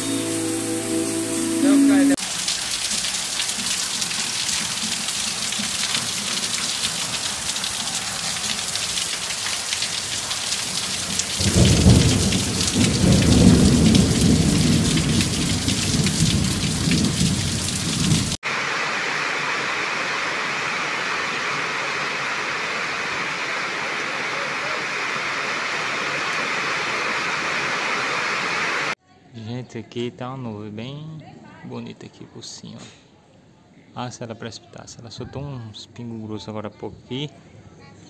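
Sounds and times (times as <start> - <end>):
heavy rain hissing: 0.0 - 29.0
deep thunder rumble: 11.3 - 18.4.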